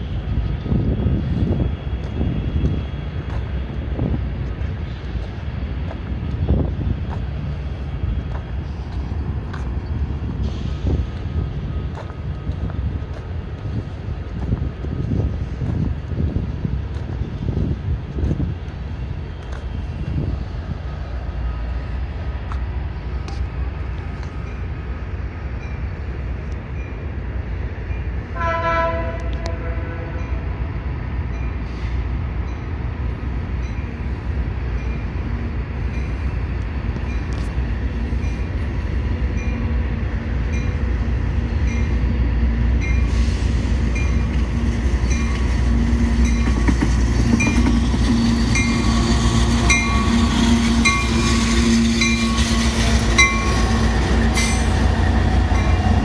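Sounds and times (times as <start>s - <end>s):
locomotive horn blast: 28.3s - 30.4s
locomotive bell ringing: 47.4s - 56.0s.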